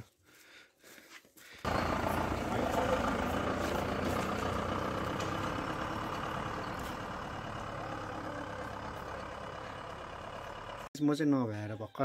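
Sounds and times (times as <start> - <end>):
diesel engine pulling away on gravel: 1.6 - 10.9.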